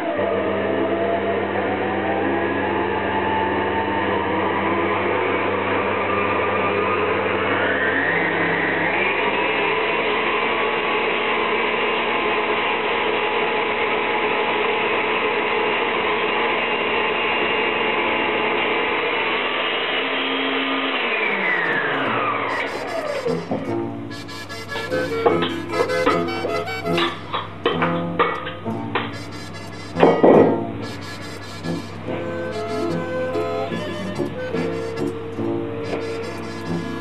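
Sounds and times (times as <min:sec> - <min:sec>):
stand mixer motor whining: 0:20.8 - 0:37.0.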